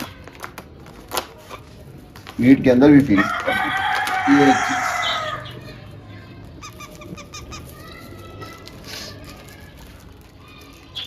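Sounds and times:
rooster crowing: 0:03.2 - 0:05.6.

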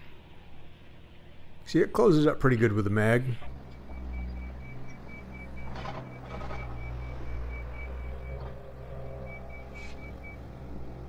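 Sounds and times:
engine rumbling: 0:00.0 - 0:11.0
truck back-up alarm beeping: 0:03.5 - 0:11.0.

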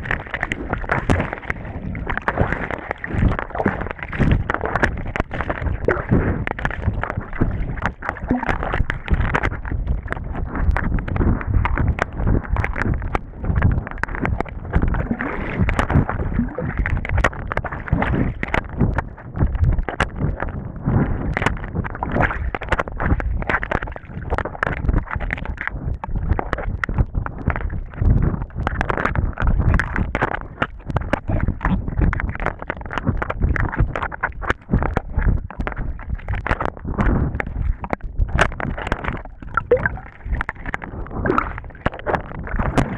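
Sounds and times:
underwater water sloshing: 0:00.0 - 0:19.0, 0:35.2 - 0:42.9.

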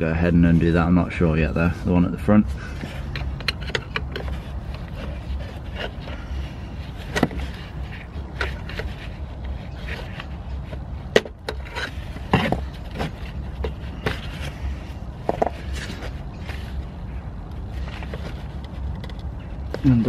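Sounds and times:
steady low hum: 0:00.0 - 0:20.0
tool clicks and scrapes: 0:02.8 - 0:16.9.

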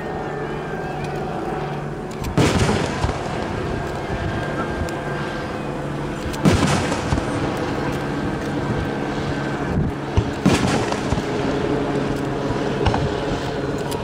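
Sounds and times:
firework bursting with boom: 0:02.4 - 0:03.6, 0:06.4 - 0:07.5, 0:10.1 - 0:11.5.

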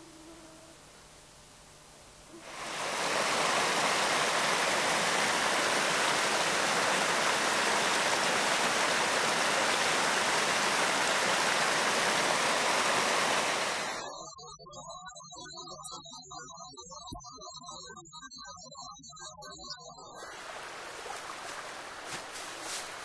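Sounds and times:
creek water rushing and splashing: 0:02.4 - 0:14.1, 0:20.2 - 0:23.0.

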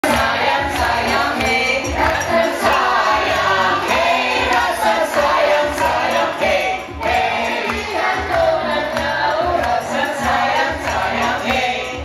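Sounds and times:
group singing into microphones: 0:00.0 - 0:12.0.

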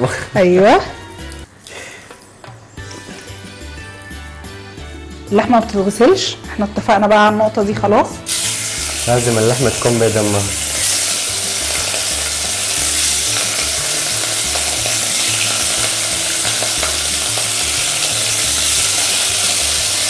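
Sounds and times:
meat sizzling in hot oil: 0:08.2 - 0:20.0.

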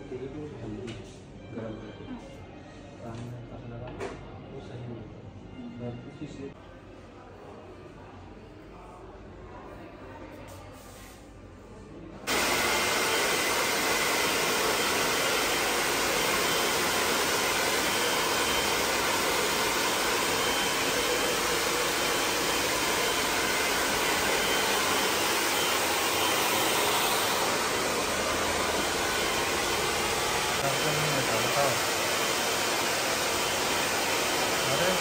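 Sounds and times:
hair dryer blowing: 0:12.3 - 0:35.0.

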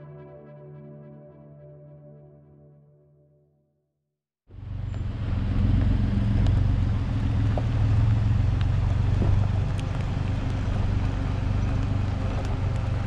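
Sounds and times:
low engine rumble: 0:04.5 - 0:13.0
stones clicking under tyres: 0:04.9 - 0:13.0.

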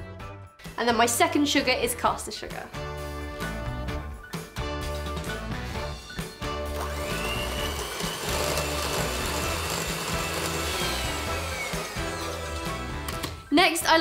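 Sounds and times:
background music: 0:00.0 - 0:14.0
electric hand mixer whine: 0:06.6 - 0:13.2.

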